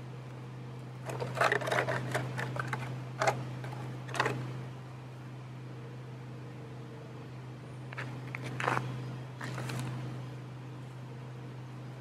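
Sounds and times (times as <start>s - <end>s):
steady low hum: 0.0s - 12.0s
brush scraping in plastic bottle: 1.0s - 4.4s.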